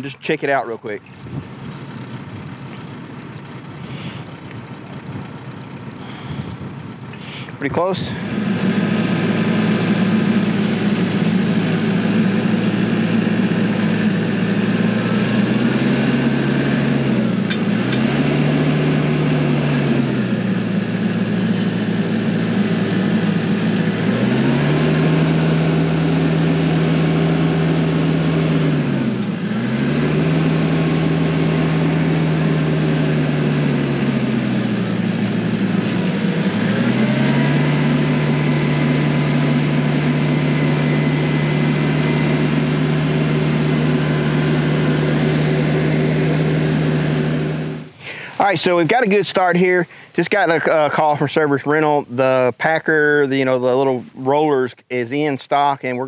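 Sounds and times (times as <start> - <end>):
tractor diesel engine working: 0.0 - 51.7.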